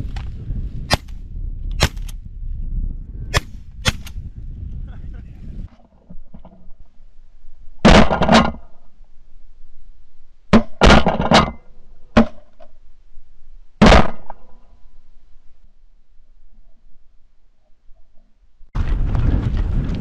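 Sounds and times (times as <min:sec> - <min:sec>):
shotgun blasts: 0:00.9 - 0:02.2, 0:03.3 - 0:04.2.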